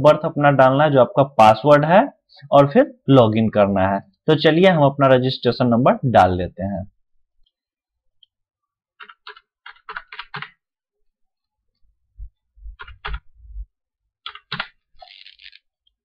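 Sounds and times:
computer keyboard typing: 9.0s - 10.6s, 12.8s - 13.2s, 14.2s - 15.6s.

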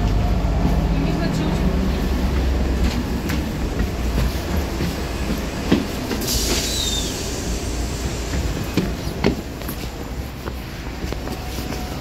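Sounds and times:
bus engine rumbling: 0.0s - 12.0s
compressed air hiss of doors: 5.9s - 9.2s.

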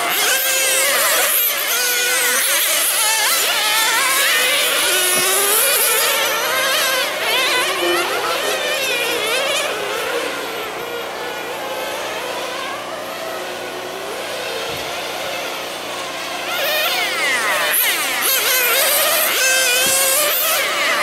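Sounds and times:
rc car engines buzzing: 0.0s - 21.0s.

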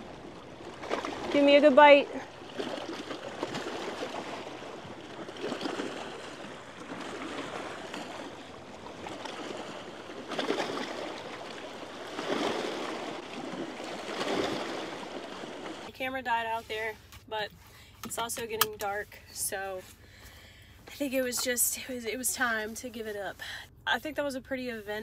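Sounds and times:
water lapping: 0.0s - 23.7s.

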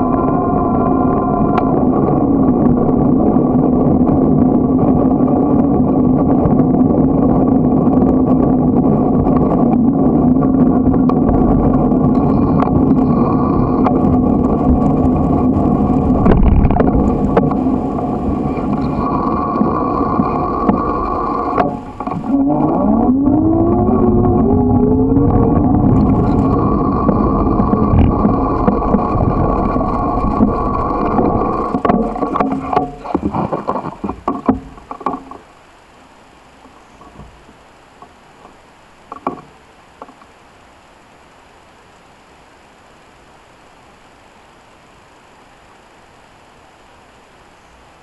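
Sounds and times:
road and wind noise: 0.0s - 40.2s
small bicycle motor running: 22.2s - 31.8s.

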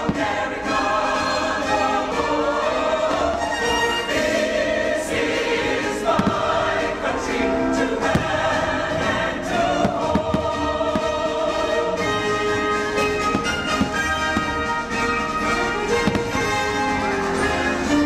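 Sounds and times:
choir singing with orchestra: 0.0s - 18.0s
firework shells bursting: 9.8s - 17.7s.

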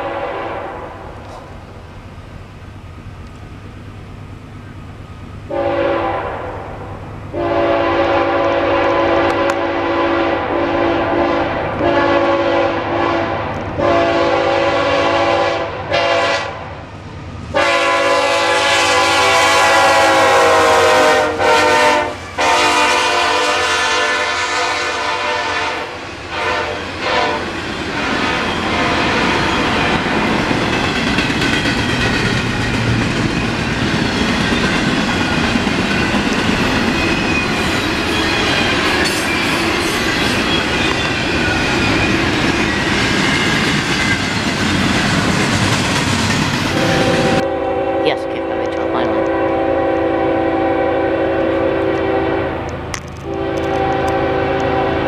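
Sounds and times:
train air horn blasts: 0.0s - 1.4s, 5.5s - 16.8s, 17.5s - 29.4s, 46.7s - 55.0s
passing train rumble: 0.0s - 55.0s
wheels clacking over rail joints: 26.1s - 47.0s, 52.6s - 54.8s.

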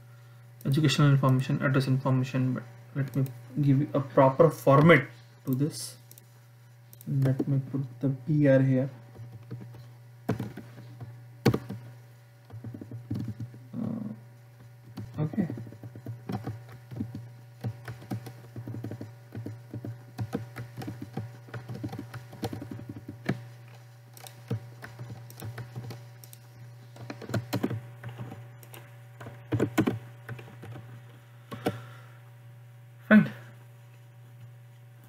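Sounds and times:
steady low hum: 0.0s - 35.0s
keyboard typing: 9.1s - 11.9s, 12.5s - 31.8s.

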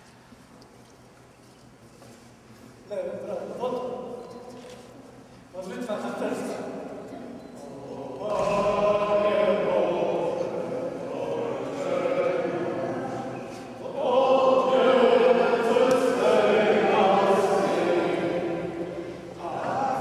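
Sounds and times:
congregation singing: 7.6s - 20.0s.

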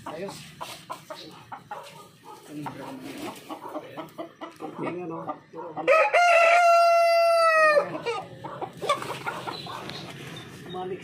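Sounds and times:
rooster crowing: 5.8s - 8.2s.

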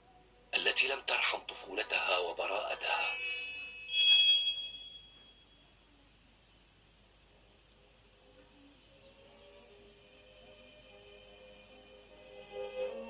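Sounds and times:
soft ambient music notes: 1.5s - 13.0s
high chirping twinkles: 2.0s - 7.6s
bright chime: 2.6s - 5.7s.

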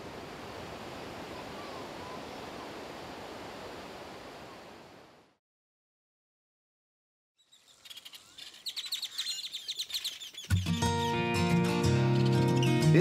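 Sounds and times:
ocean surf on sandy beach: 0.0s - 5.3s.

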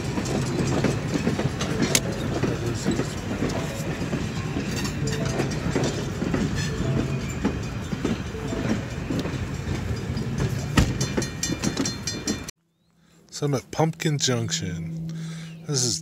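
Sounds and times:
train wheels clacking over rail joints: 0.0s - 12.5s.

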